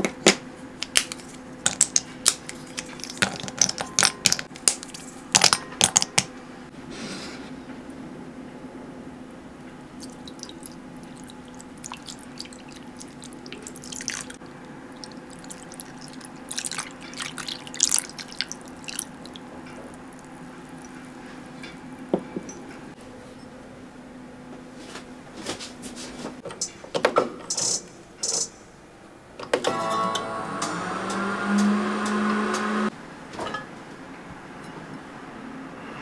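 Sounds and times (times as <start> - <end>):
faint steady hum: 0.0 - 25.3
milk pouring and splashing: 2.5 - 3.5, 9.8 - 22.1.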